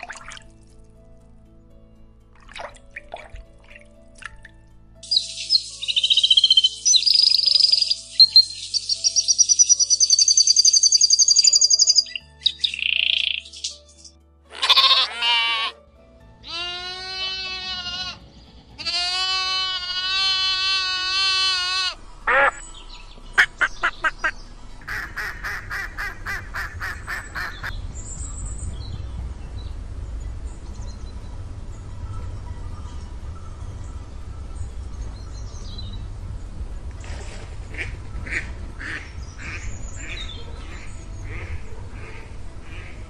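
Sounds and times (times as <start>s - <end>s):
songbird trilling: 5.0s - 15.3s, 20.1s - 28.7s
sheep bleating: 14.5s - 15.8s, 16.4s - 18.2s, 18.8s - 22.0s.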